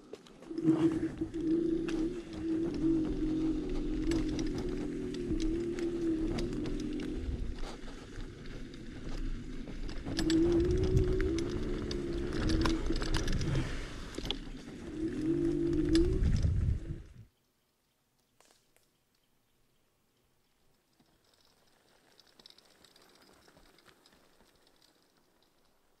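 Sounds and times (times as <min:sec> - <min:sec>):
scooter rattling over rough ground: 0:00.1 - 0:17.1, 0:20.9 - 0:26.0
wind rumble: 0:00.4 - 0:17.3
electric motor whine: 0:09.9 - 0:17.1.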